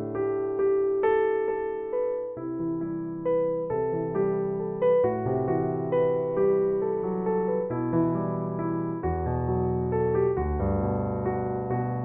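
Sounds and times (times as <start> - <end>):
calm piano music: 0.0 - 12.0.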